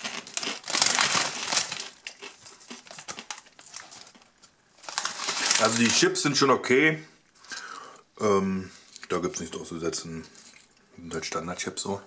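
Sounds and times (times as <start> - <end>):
crisp bag crinkling: 0.0 - 6.3.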